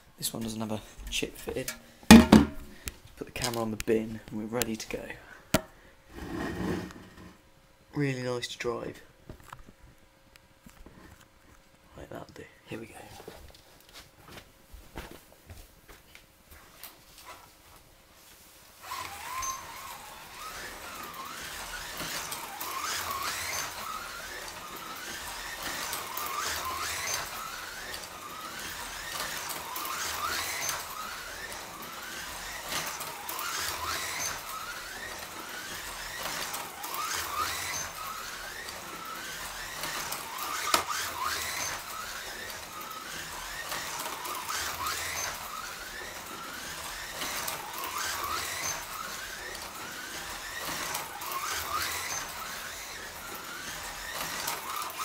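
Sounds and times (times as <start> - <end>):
slot car electric motor whining: 18.8 - 55.0.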